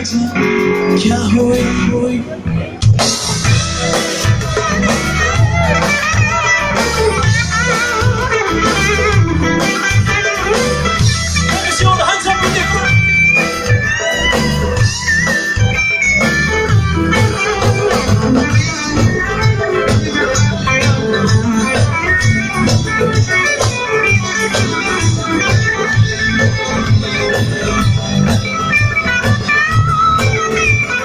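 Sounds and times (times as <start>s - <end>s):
electric guitars: 0.0s - 31.0s
live band playing: 0.0s - 31.0s
drum kit beat: 2.8s - 31.0s.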